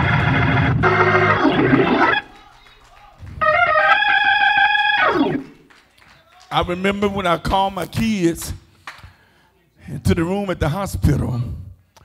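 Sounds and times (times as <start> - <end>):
sustained organ chords: 0.0 - 2.6, 3.2 - 5.7
church band with organ and guitar: 0.0 - 9.4.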